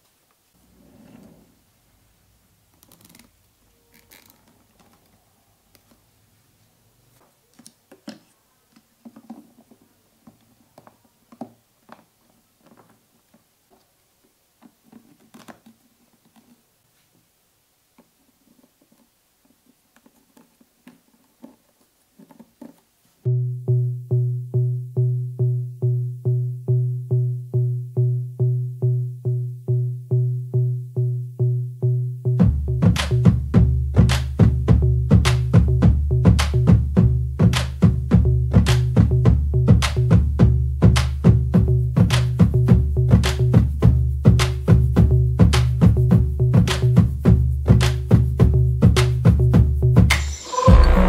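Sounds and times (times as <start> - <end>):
plastic parts clicking: 7.5 - 13.9.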